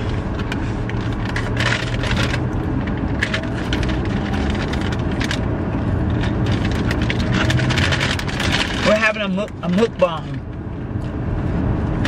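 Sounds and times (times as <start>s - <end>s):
paper packaging rustling: 0.0s - 5.4s, 6.2s - 9.0s
car road and engine rumble: 0.0s - 12.0s.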